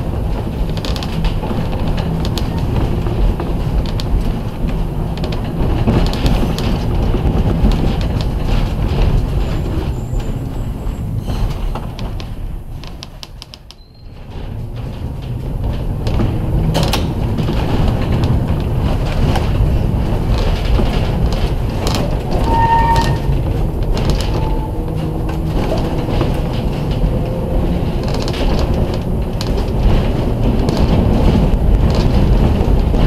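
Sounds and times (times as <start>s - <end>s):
clicks and rattles: 0.0s - 33.0s
streetcar wheels rumbling on rails: 0.0s - 33.0s
high squeal of wheels: 9.5s - 12.0s, 13.8s - 14.2s, 22.4s - 23.4s.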